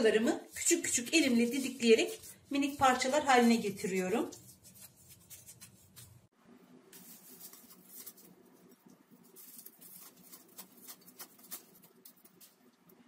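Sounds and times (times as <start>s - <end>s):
crackling and rustling: 0.2s - 13.0s
phyllo sheets tearing: 7.0s - 12.7s.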